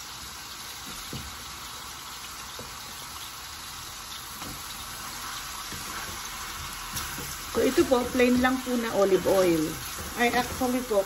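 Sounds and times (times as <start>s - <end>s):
mushrooms sizzling in a pan: 0.0s - 11.0s
spatula scraping a pan: 4.4s - 11.0s.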